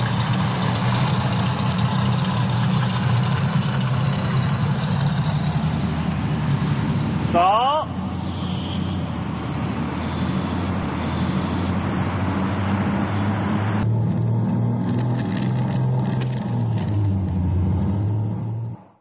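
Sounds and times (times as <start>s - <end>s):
go-kart engine running: 0.0s - 7.9s, 13.8s - 17.6s.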